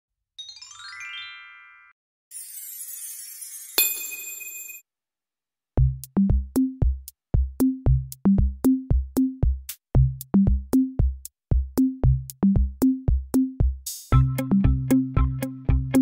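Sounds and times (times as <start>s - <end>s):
electronic drum machine beat: 5.8s - 16.0s.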